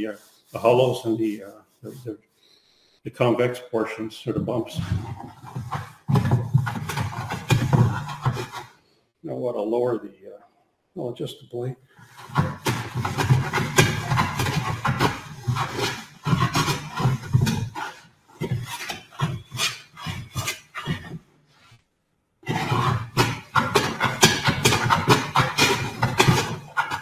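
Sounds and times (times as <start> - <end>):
hand plane shaving wood: 3.9 - 8.7, 12.0 - 21.2, 22.4 - 27.0.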